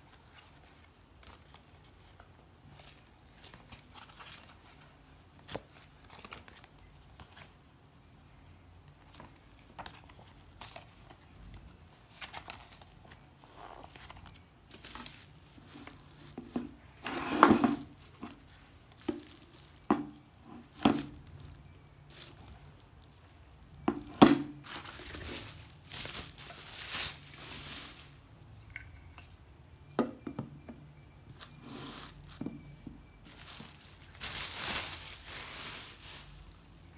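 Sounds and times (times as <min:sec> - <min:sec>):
plastic packaging crinkling: 0:09.0 - 0:17.0, 0:17.8 - 0:28.4, 0:33.0 - 0:36.9.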